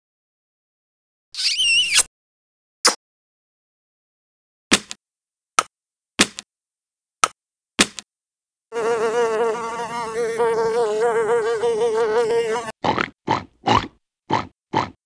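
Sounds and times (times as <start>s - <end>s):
loud fly-like buzzing: 8.7s - 12.8s.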